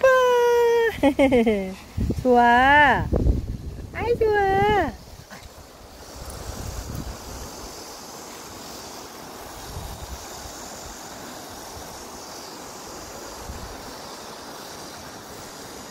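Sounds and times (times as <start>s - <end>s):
stream running over rocks: 0.0s - 15.9s
wind gusting on microphone: 0.9s - 7.8s, 9.5s - 11.0s.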